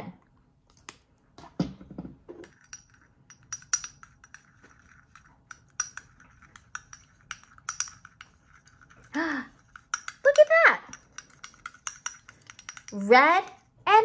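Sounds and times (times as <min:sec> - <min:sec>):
brush tapping glass jar: 0:02.4 - 0:13.7
brush scraping: 0:02.6 - 0:12.8.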